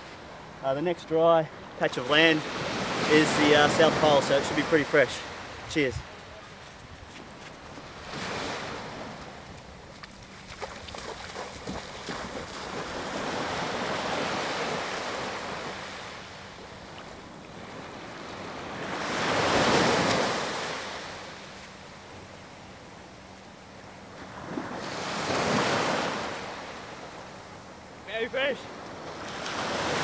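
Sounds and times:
small waves washing onto beach: 1.6 - 6.8, 7.4 - 22.3, 28.1 - 30.0.

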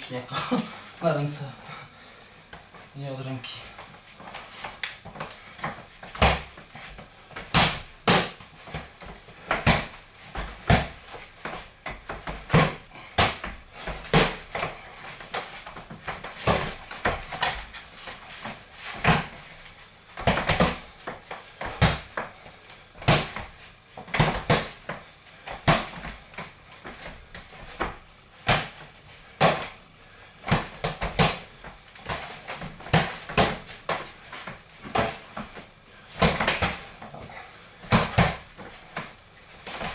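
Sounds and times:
gloved punches smacking mitts: 6.1 - 6.6, 7.4 - 8.9, 9.5 - 11.0, 11.8 - 14.7, 19.0 - 19.4, 20.2 - 20.9, 21.6 - 22.3, 23.0 - 23.5, 24.1 - 26.2, 26.9 - 29.8, 30.4 - 34.1, 36.2 - 36.9, 37.8 - 39.9.

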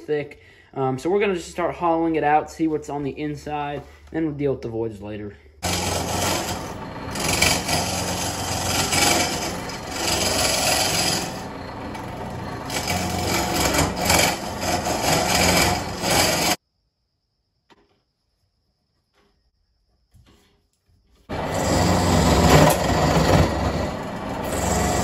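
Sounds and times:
lathe gouge scraping wood: 5.6 - 16.6, 21.3 - 25.0.

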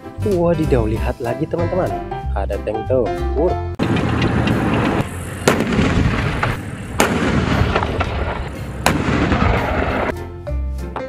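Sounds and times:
sharp bangs: 3.8 - 10.1
tank engine running hard: 3.8 - 10.1.

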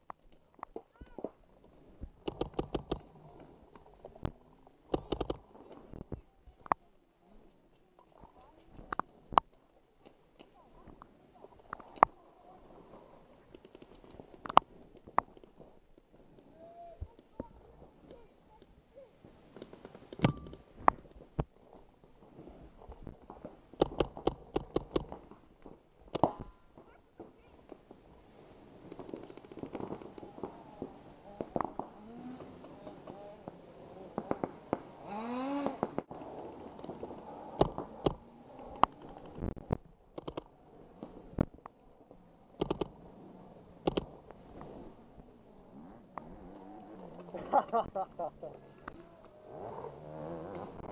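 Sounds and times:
paintball markers firing: 4.9 - 5.4, 23.8 - 25.2.

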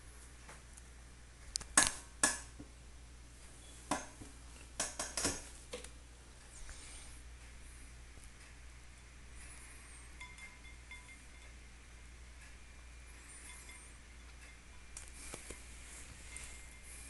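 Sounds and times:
glassy clinks on crystal bowl: 10.2 - 11.6.

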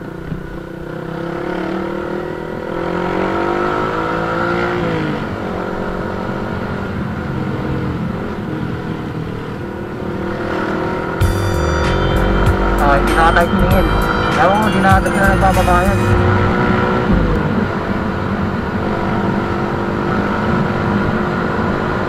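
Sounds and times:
motorcycle engine accelerating: 0.0 - 22.0
wind rumble on microphone: 16.2 - 21.3.

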